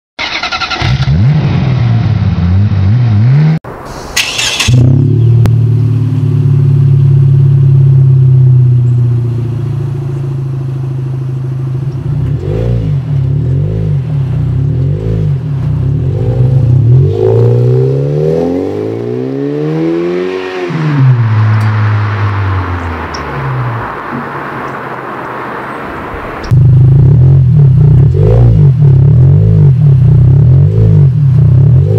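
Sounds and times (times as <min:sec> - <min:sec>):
engine revving: 0:00.2 - 0:03.6, 0:04.2 - 0:09.9, 0:12.2 - 0:31.9
car engine starting: 0:00.2 - 0:31.9
car pulling away: 0:00.2 - 0:31.9
car engine idling: 0:04.2 - 0:17.0.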